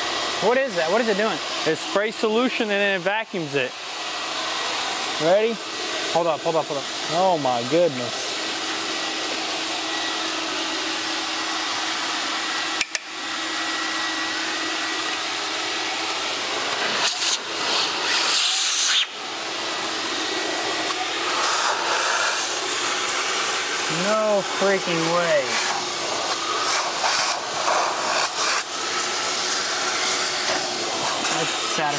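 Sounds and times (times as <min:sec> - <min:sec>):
vacuum motor whining: 0:00.0 - 0:31.9
spraying and suction hissing: 0:21.2 - 0:31.9.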